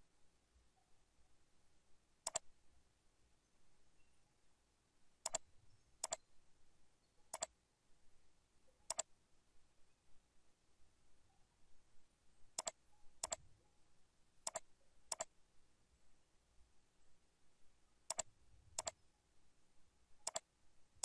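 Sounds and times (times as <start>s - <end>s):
computer mouse clicks: 2.2s - 2.5s, 5.2s - 5.4s, 6.0s - 6.2s, 7.3s - 7.5s, 8.9s - 9.1s, 12.5s - 13.4s, 14.4s - 15.3s, 18.1s - 19.0s, 20.2s - 20.5s.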